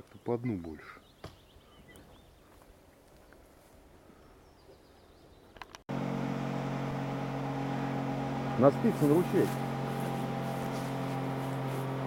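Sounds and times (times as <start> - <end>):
motorboat engine droning: 5.9 - 12.0.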